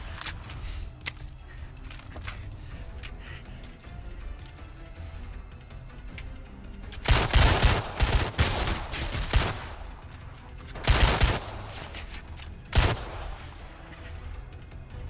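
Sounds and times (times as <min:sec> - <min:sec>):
film score: 0:00.0 - 0:15.0
bullet impacts: 0:06.9 - 0:14.0
automatic gunfire: 0:07.0 - 0:10.1, 0:10.8 - 0:12.1, 0:12.7 - 0:13.7.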